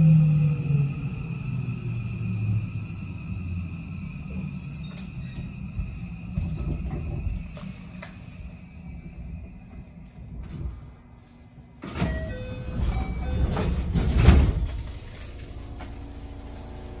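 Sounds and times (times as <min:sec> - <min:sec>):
train doors opening rush: 0:00.0 - 0:17.0
low rumble: 0:10.0 - 0:17.0.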